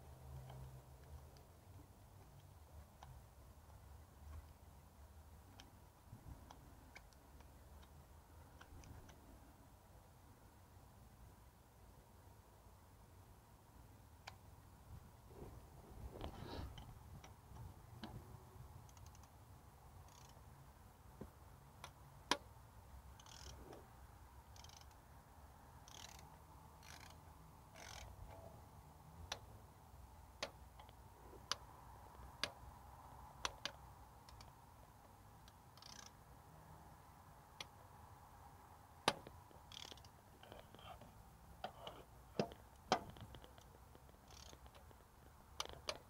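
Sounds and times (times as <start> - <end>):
ratchet clicking: 18.8 - 19.3, 20.0 - 20.4, 23.1 - 23.6, 24.4 - 25.0, 25.8 - 28.4, 35.4 - 36.2, 39.0 - 41.0, 41.6 - 46.0.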